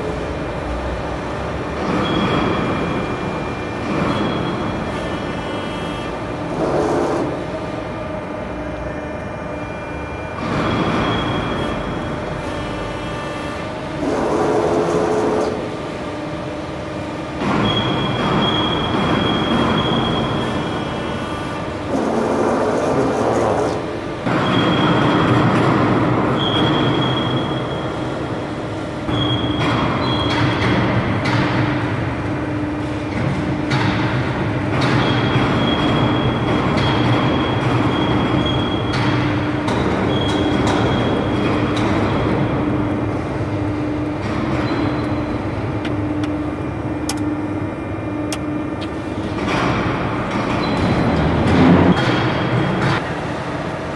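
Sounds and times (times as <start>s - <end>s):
machinery humming: 0.0s - 53.9s.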